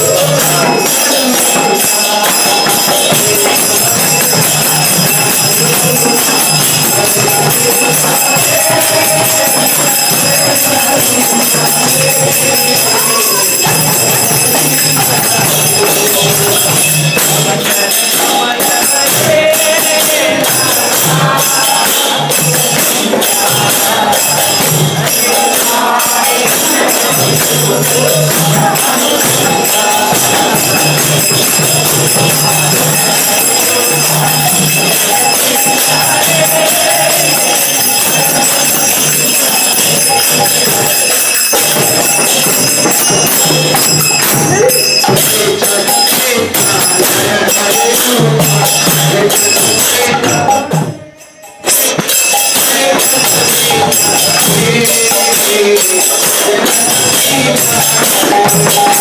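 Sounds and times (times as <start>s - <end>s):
tambourine jingling: 0.0s - 59.0s
voices chanting: 0.0s - 59.0s
group hand-clapping: 17.2s - 33.0s.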